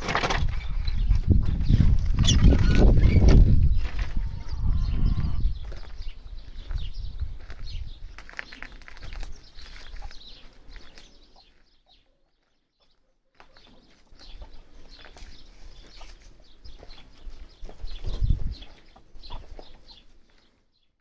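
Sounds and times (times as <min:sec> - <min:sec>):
chickens clucking quietly: 0:03.9 - 0:05.9.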